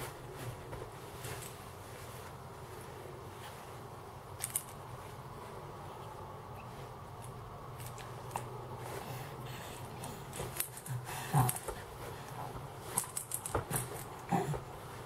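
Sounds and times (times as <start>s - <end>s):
infant grunting: 10.8s - 11.8s, 14.2s - 14.7s.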